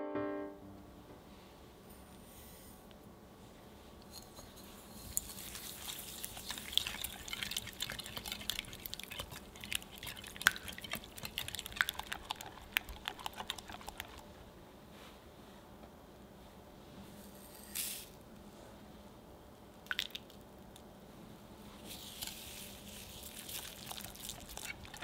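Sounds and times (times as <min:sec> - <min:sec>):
whisk clicking against glass bowl: 0:05.2 - 0:14.2.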